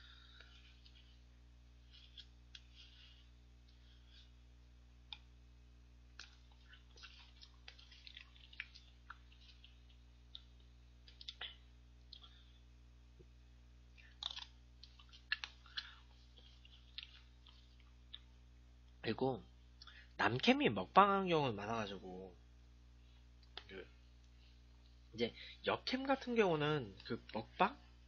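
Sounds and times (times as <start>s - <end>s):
low steady hum: 0.0s - 28.0s
lip smacks and chewing: 6.1s - 12.6s, 13.9s - 19.0s.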